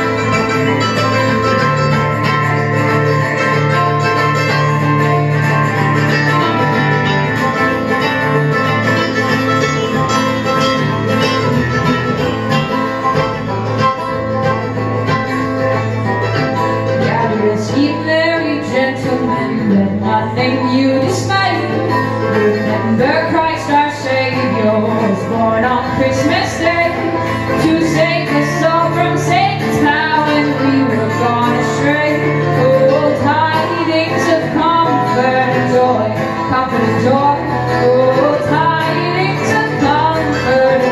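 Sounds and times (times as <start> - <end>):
acoustic string band playing: 0.0 - 40.9
woman singing: 16.8 - 40.9.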